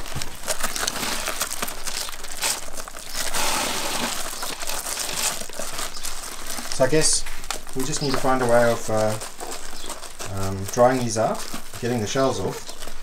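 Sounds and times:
seeds rubbed crackling and rustling: 0.0s - 13.0s.

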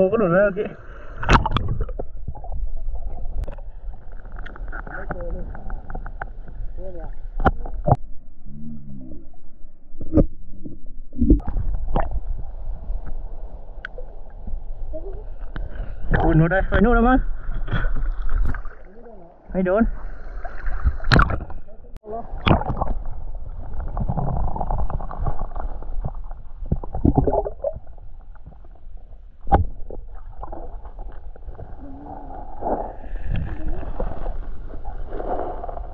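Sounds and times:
muffled underwater rumble: 0.9s - 19.5s, 20.1s - 35.9s
dull knocks underwater: 1.2s - 3.6s, 20.7s - 21.6s, 22.4s - 31.7s
muffled wavering hum: 5.0s - 16.2s.

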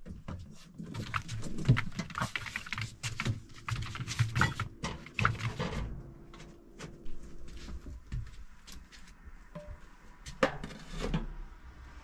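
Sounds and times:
household items clattering: 0.0s - 6.0s.

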